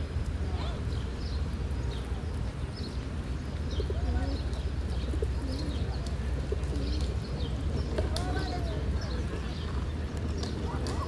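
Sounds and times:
pigeons cooing: 0:03.8 - 0:09.8.

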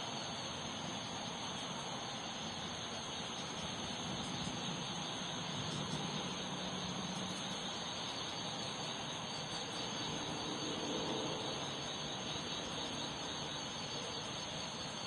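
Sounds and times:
rain falling on a pond: 0:00.0 - 0:10.3.

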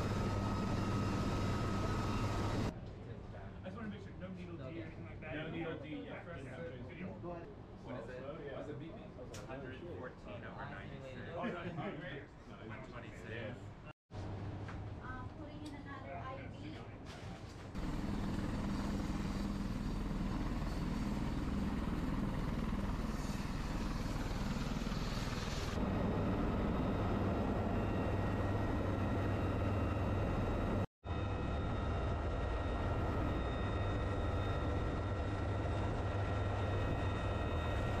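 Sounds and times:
helicopter engine and rotor noise: 0:00.0 - 0:02.7, 0:17.8 - 0:38.0.

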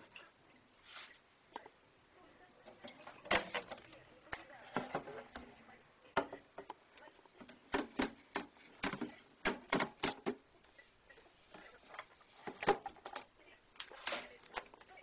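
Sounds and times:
clicks and knocks of plastic handling: 0:07.4 - 0:10.5, 0:11.5 - 0:15.0.

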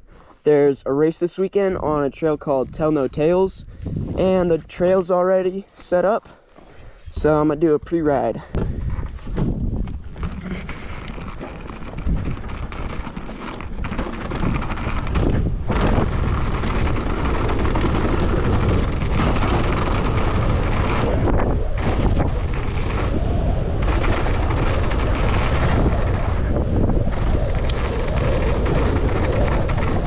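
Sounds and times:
wind rushing over microphone: 0:01.6 - 0:05.0, 0:07.0 - 0:30.0
bike rattles and knocks: 0:08.6 - 0:30.0
tyres rolling over dirt: 0:08.8 - 0:30.0.

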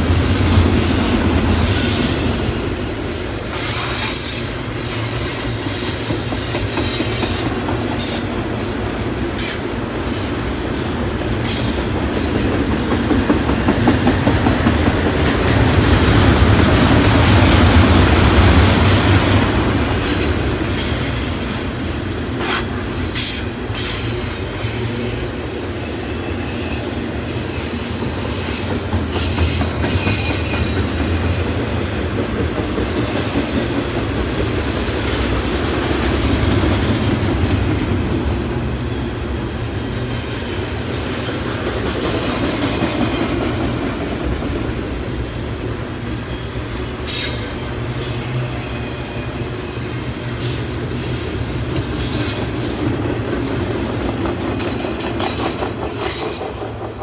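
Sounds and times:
train wheels rumbling on rail: 0:00.0 - 0:57.0
high-pitched wheel squeals: 0:03.5 - 0:08.2.

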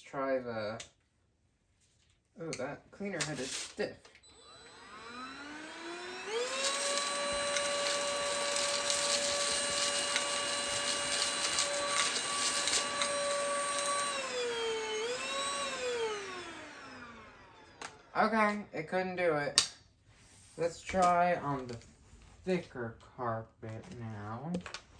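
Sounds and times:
vacuum motor high whine: 0:04.2 - 0:18.1.

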